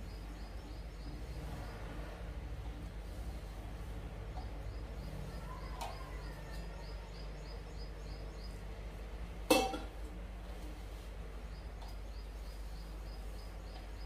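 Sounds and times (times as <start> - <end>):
steady low hum: 0.0 - 14.0
faint high chirping: 4.2 - 8.7
metal bowl clanking: 9.5 - 10.0.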